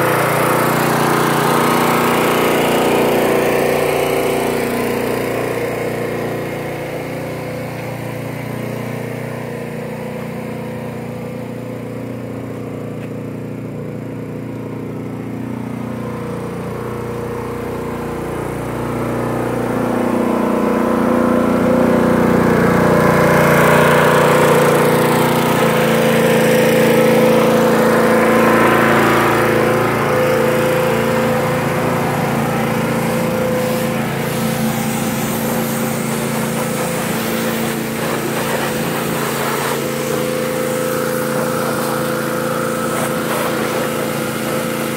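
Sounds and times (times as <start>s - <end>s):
pressure washer engine running: 0.0s - 44.9s
spray hiss: 32.5s - 44.9s.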